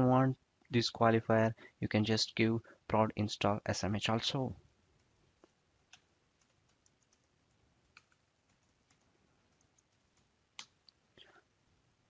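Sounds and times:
faint keyboard keystrokes: 5.0s - 10.8s.

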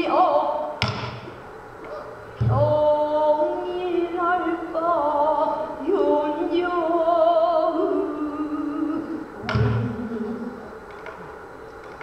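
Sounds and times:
woman singing long wavering notes: 2.5s - 10.8s.

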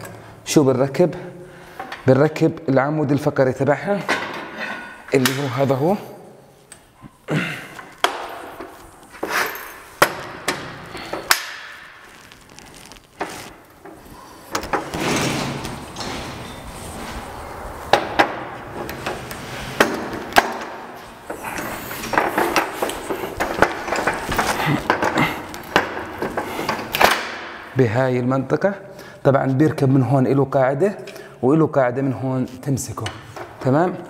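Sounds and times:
metal rattle: 17.9s - 27.6s
metal parts clanking: 20.6s - 27.5s.

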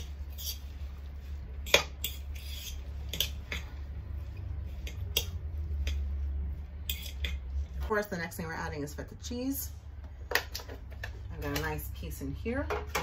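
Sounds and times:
food mixture rustling: 0.0s - 8.7s.

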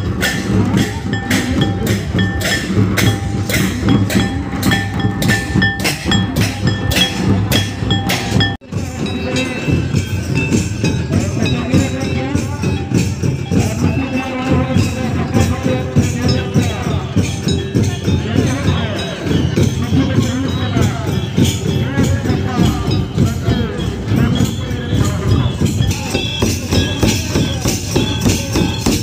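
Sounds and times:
drum beat: 0.0s - 29.0s
ringing metallic notes: 0.0s - 29.0s.

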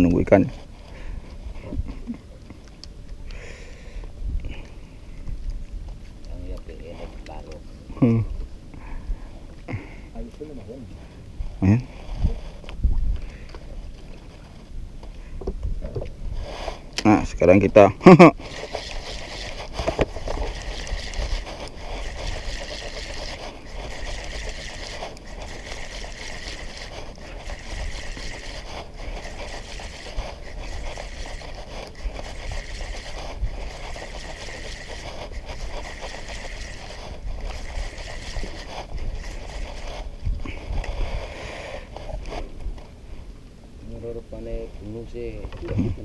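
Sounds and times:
wind on microphone: 3.9s - 7.3s, 11.2s - 46.0s
sea noise: 10.8s - 43.8s.

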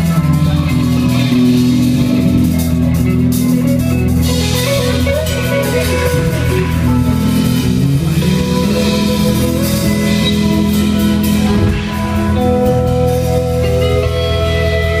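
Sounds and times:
live rock band playing loudly: 0.0s - 15.0s.

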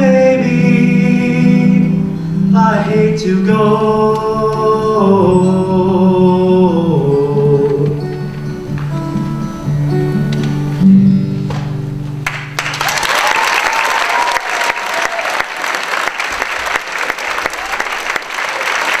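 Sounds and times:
acoustic guitar playing: 0.0s - 12.8s
audience applauding: 12.2s - 19.0s
voices cheering: 12.8s - 19.0s.

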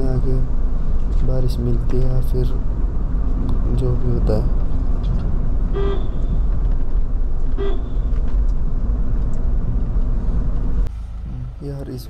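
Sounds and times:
vehicle driving on road: 0.0s - 12.0s
short horn toot: 5.7s - 6.3s, 7.5s - 8.0s.

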